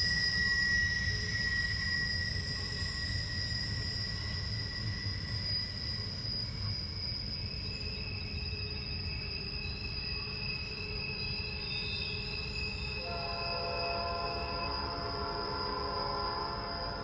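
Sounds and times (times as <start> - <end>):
train wheels squealing: 0.0 - 17.0.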